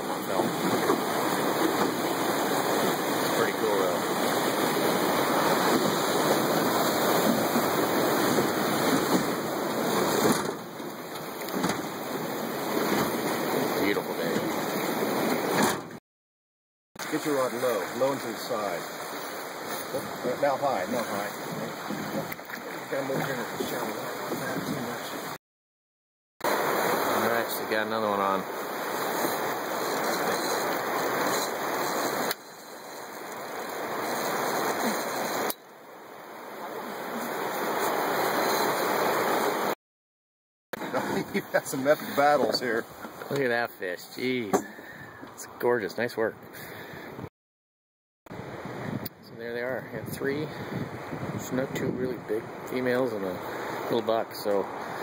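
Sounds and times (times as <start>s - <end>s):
river rapids rushing and splashing: 0.0s - 10.4s, 17.0s - 25.4s, 26.5s - 35.6s, 36.3s - 39.8s.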